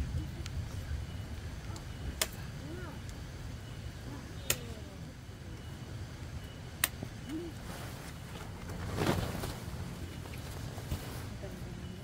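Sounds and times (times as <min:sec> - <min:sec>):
rustle of tent fabric: 0:07.5 - 0:12.0.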